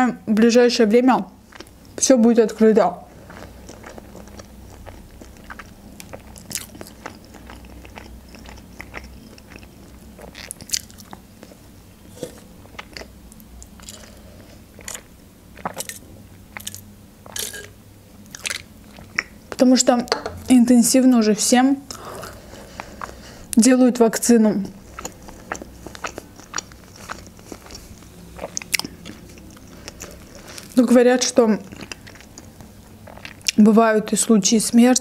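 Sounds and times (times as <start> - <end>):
person chewing food: 1.5 - 2.0, 3.1 - 19.6, 21.9 - 23.5, 24.7 - 30.8, 31.6 - 33.6.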